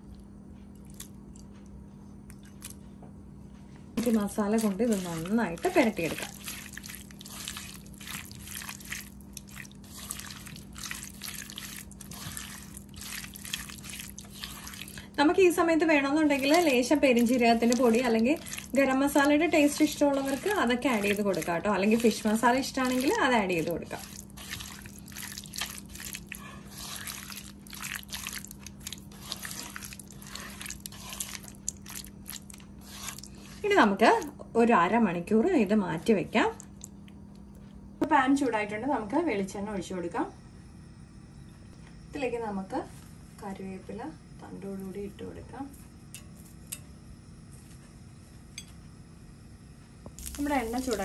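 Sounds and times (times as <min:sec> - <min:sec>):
faint steady hum: 0:00.0 - 0:51.0
hand squelching prawns in paste: 0:04.0 - 0:34.3, 0:50.2 - 0:51.0.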